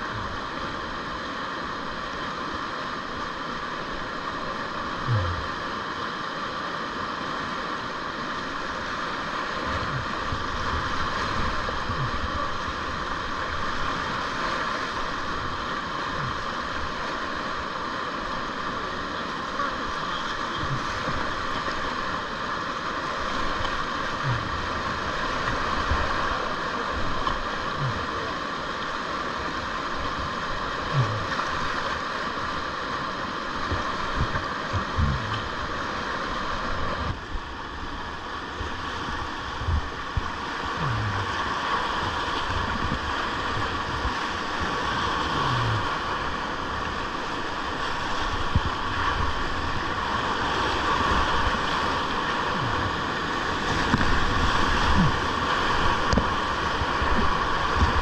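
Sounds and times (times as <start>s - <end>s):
whitewater rushing: 0.0s - 58.0s.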